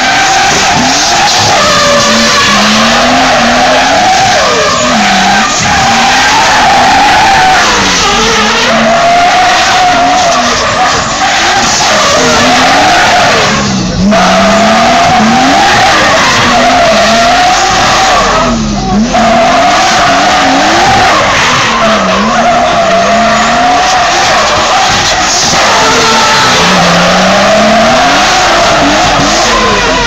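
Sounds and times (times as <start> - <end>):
car engine revving: 0.0 - 30.0
tyres squealing: 0.0 - 30.0.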